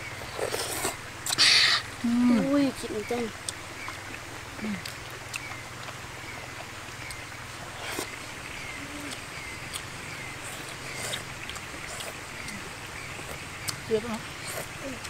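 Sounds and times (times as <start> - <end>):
short chirping animal call: 1.3 - 1.9.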